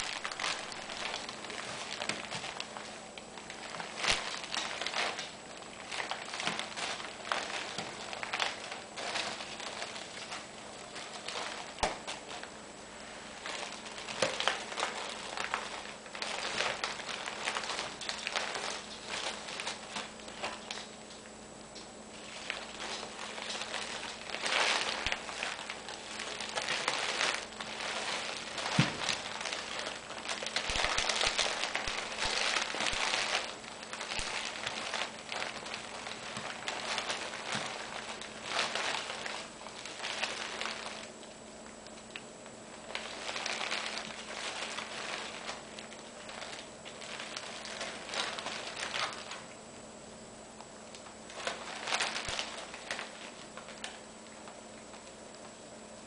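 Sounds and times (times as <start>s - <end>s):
plastic wrappers crinkling: 0.0s - 50.0s, 50.6s - 56.0s.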